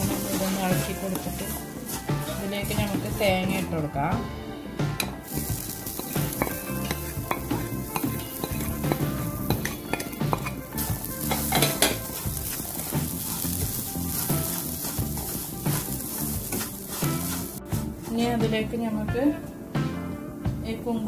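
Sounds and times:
wooden spatula scraping pan: 0.0 - 3.9, 5.9 - 18.4
sizzling in pan: 0.0 - 20.0.

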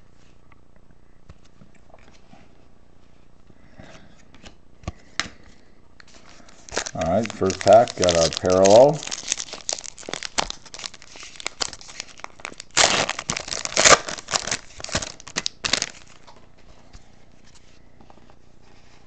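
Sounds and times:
foil wrapper crinkling and tearing: 6.1 - 16.4.

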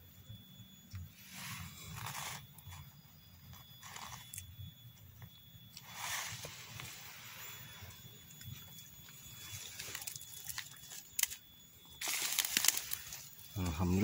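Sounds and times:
rustling of pine needles and leaves: 1.1 - 2.8, 3.5 - 4.4, 5.8 - 14.0
twigs snapping: 9.6 - 11.4, 12.0 - 13.3.

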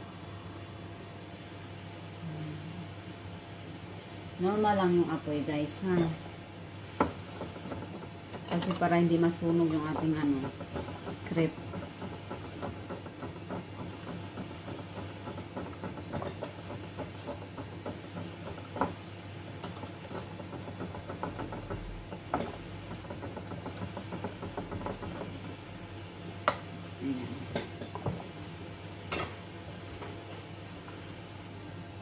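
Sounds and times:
whisk beating batter in glass bowl: 7.0 - 25.6.

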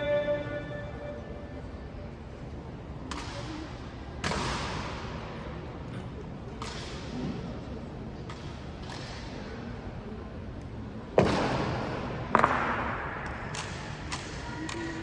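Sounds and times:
sharp echoing cracks: 11.2 - 15.0.

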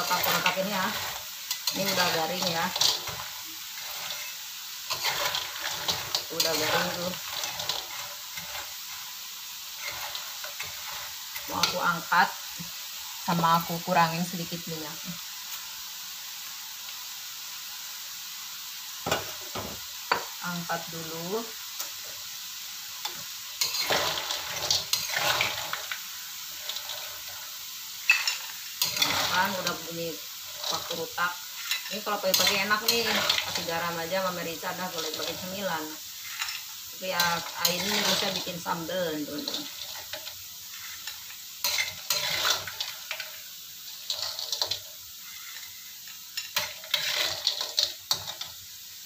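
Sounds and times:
metal spatula scraping wok: 0.0 - 12.1, 23.0 - 48.6
fried cubes clattering in pan: 0.0 - 13.0, 18.9 - 20.4, 21.6 - 49.0
oil sizzling: 0.0 - 49.0.

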